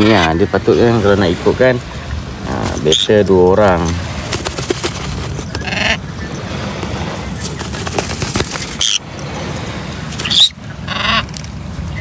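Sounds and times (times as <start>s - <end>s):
parrot squawking: 5.6s - 6.0s, 8.8s - 9.0s, 10.2s - 11.3s.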